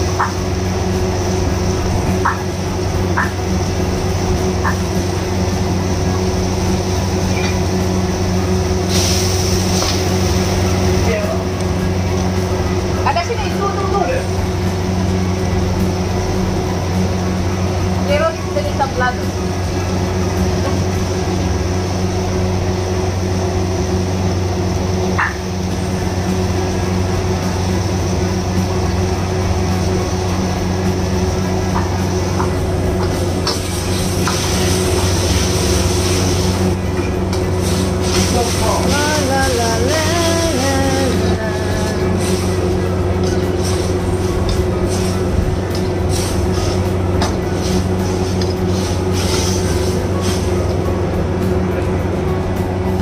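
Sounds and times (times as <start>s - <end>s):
gas stove burner roaring: 0.0s - 53.0s
kitchen machine hum: 0.0s - 53.0s
food hissing in a wok: 8.8s - 10.7s, 33.5s - 36.7s, 37.6s - 38.7s.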